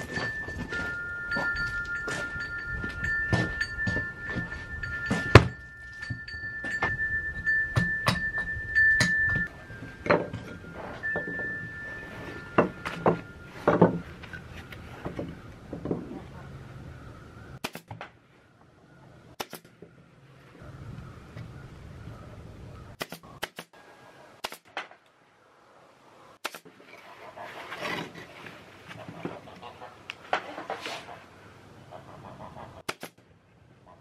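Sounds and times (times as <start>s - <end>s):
chime-like ringing: 0.0s - 15.0s
hatchet striking sticks: 0.0s - 15.2s.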